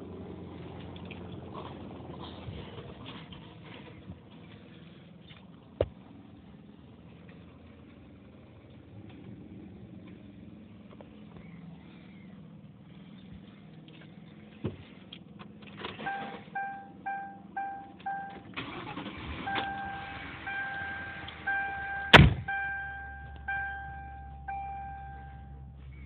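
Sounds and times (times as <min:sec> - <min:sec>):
car warning chime beeping: 0:16.0 - 0:26.0
loud heavy thump: 0:22.1 - 0:22.5.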